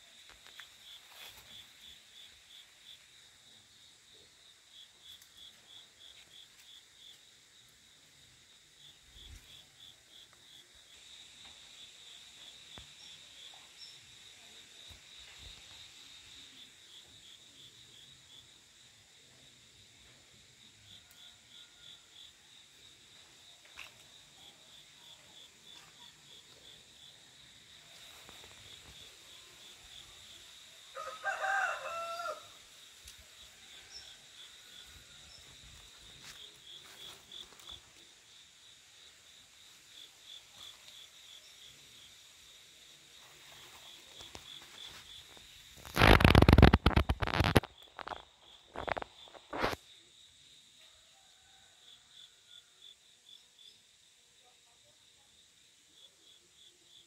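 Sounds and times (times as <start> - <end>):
insect chirping: 0.0 - 57.0
high insect whine: 20.0 - 50.6
leaves and stems rustling: 45.8 - 48.2.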